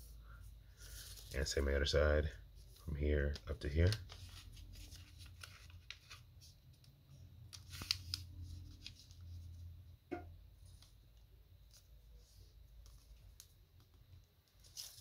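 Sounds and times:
paper rustling and crinkling: 0.8s - 1.6s, 2.6s - 6.9s, 7.5s - 9.7s, 11.6s - 15.0s.

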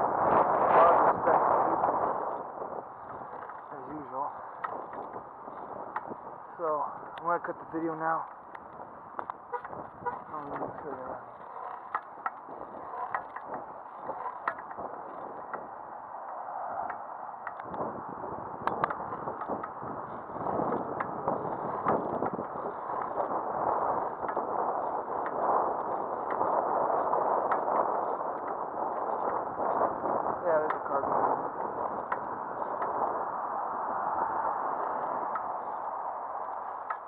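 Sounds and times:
wind and road rush: 0.0s - 37.0s
bicycle clicks and rattles: 8.3s - 17.9s, 18.6s - 30.8s, 31.6s - 33.1s, 36.4s - 37.0s.

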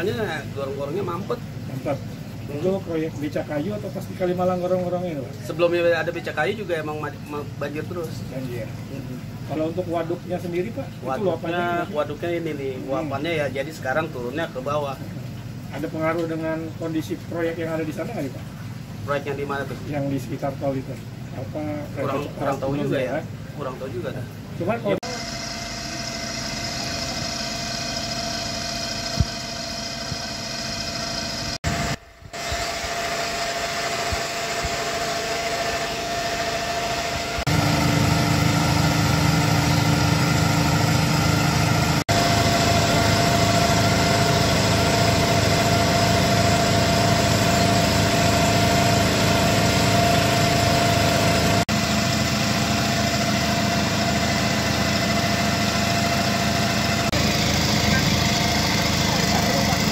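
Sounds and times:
small petrol engine running: 25.0s - 59.9s.

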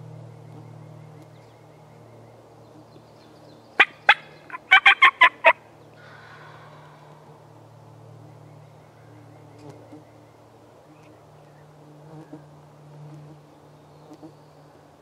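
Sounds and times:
turkey calls: 3.8s - 6.6s.

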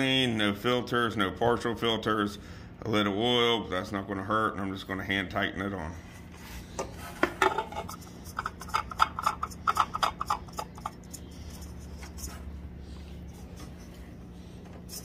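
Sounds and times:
oil filter rubbing clicks: 7.5s - 12.3s.

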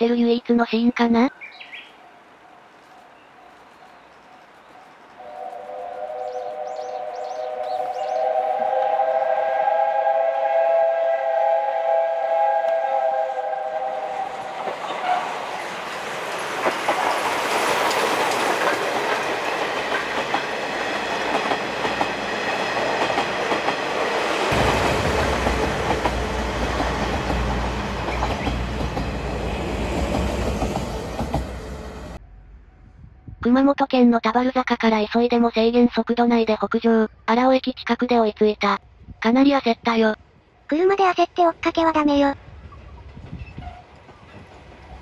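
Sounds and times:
train passing with wheel clatter: 1.3s - 33.2s, 41.6s - 45.0s
steam locomotive whistle: 5.2s - 15.4s
deep rumble: 32.0s - 33.5s.

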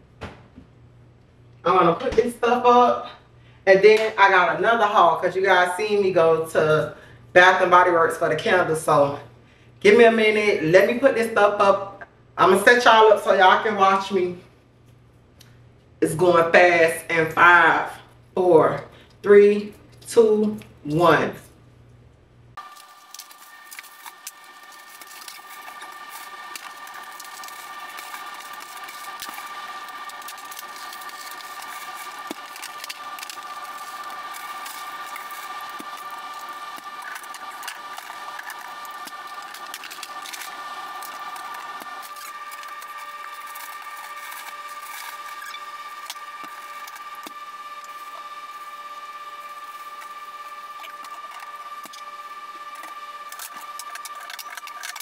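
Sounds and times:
sped-up clicks and rustles of packages: 22.6s - 55.0s.

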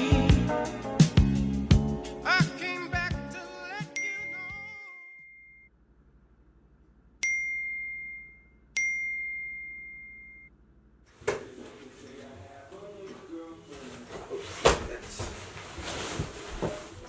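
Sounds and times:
rustling: 11.2s - 17.0s.

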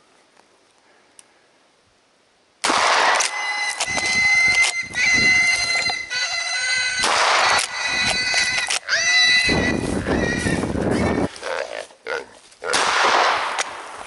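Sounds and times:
shotgun blasts: 2.6s - 4.7s, 7.0s - 7.7s, 12.7s - 14.0s
pigs squealing: 3.4s - 12.8s.

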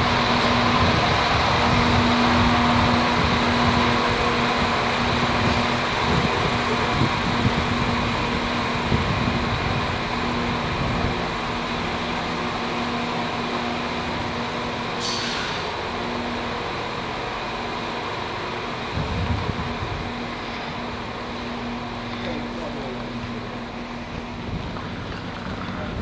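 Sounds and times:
train engines humming: 0.0s - 26.0s
sharp hiss: 15.0s - 15.8s.

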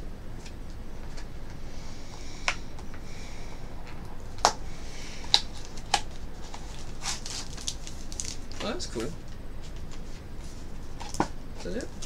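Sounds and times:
cardboard rustling: 3.8s - 12.0s.

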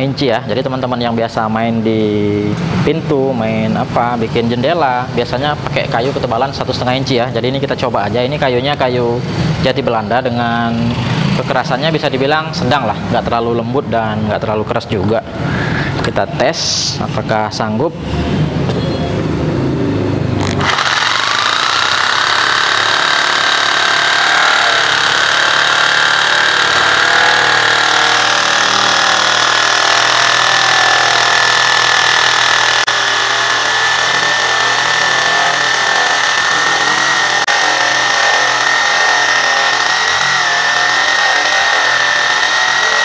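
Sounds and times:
jigsaw cutting wood: 20.4s - 43.0s.

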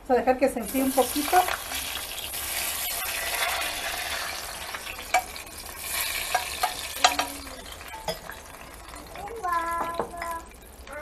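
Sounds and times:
hot oil sizzling: 0.5s - 11.0s
metal utensil scraping a pan: 0.7s - 9.0s.

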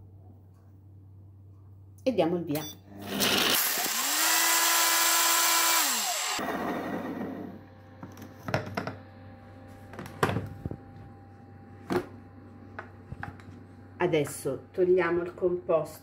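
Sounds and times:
food processor motor spinning down: 2.9s - 8.2s.

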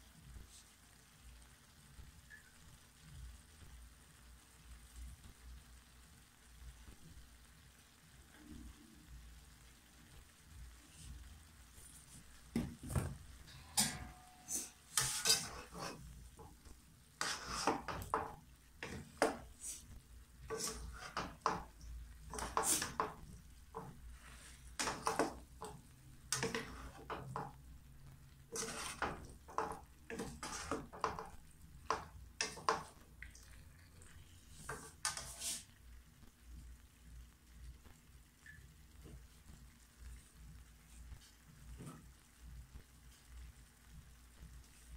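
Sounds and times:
frying sizzle: 0.0s - 44.9s
spatulas scraping a wok: 13.0s - 16.5s, 17.2s - 27.6s, 28.3s - 33.0s, 34.5s - 35.7s.

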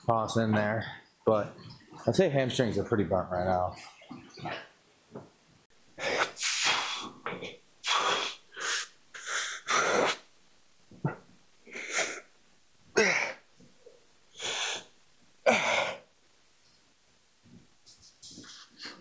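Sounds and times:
man breathing hard: 14.4s - 14.9s.

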